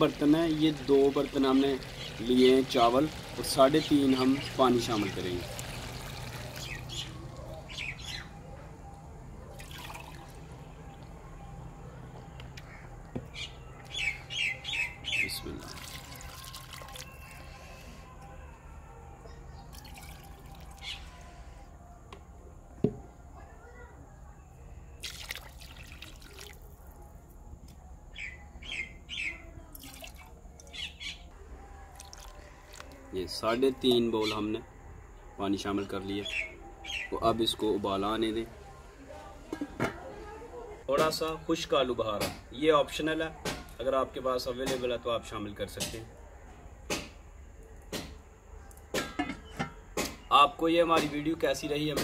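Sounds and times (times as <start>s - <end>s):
water pouring into a pot: 0.0s - 7.4s, 9.5s - 10.4s, 15.4s - 17.6s, 19.7s - 20.9s, 25.0s - 26.8s, 29.8s - 30.3s, 31.9s - 33.0s
birds chirping: 0.0s - 21.4s, 34.0s - 38.2s.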